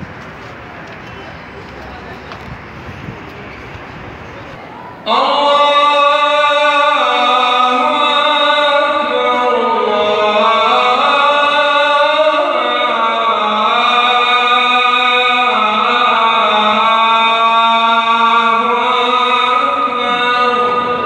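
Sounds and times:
man chanting over loudspeakers: 4.9 - 21.0.

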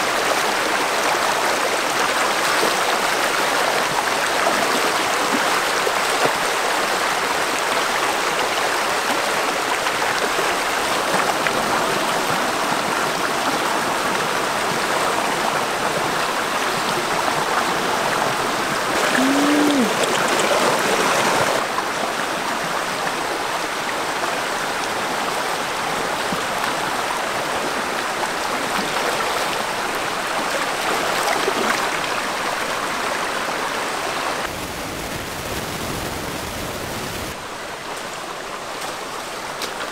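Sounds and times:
stream rushing over stones: 0.0 - 39.9.

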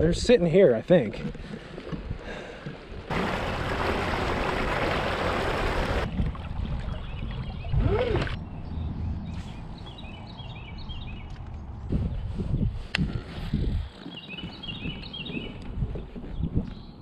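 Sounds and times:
water rushing along kayak hull: 1.3 - 8.4.

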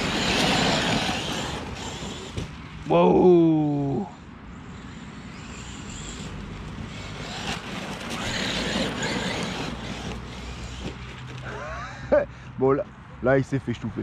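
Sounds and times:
electric motor running: 0.0 - 2.5, 4.6 - 11.4
tyres scrubbing on gravelly dirt: 0.0 - 2.5, 6.3 - 11.5.

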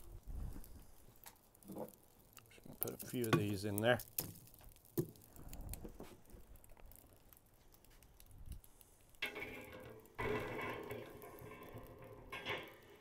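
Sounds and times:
wood chunks clattering onto charcoal: 0.0 - 13.0
metal grate clanking: 9.2 - 13.0.

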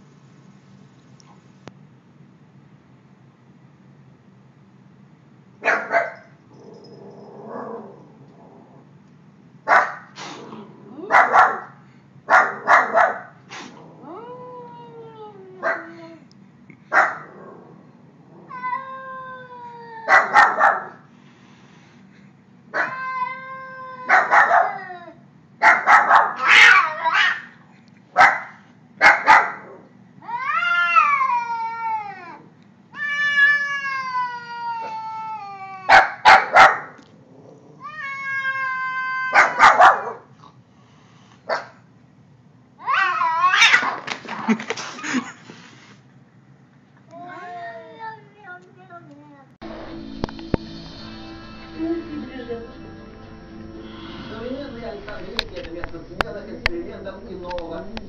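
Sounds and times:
cat hissing: 10.0 - 11.3, 12.6 - 14.1, 42.9 - 46.1
cat yowling: 18.3 - 20.9, 22.7 - 25.2, 25.9 - 27.5, 30.2 - 36.8, 37.8 - 40.2, 42.8 - 44.0.

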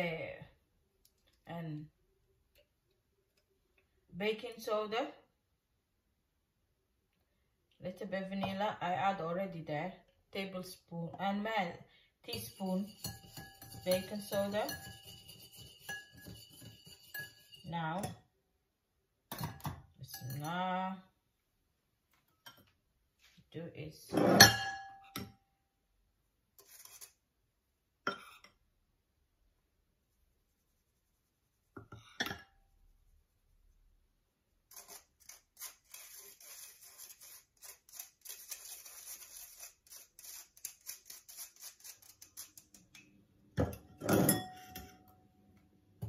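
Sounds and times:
metal clattering on ceramic: 12.3 - 18.2
spoon scratching metal sieve: 12.3 - 18.2, 26.5 - 27.3, 34.6 - 43.0.

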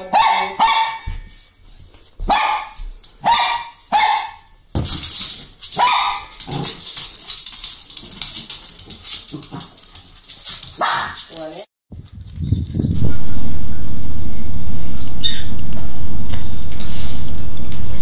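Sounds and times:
small dog barking: 0.0 - 1.2, 2.3 - 4.5, 5.8 - 6.6, 10.8 - 11.2
scratchy rustling: 5.0 - 12.4.

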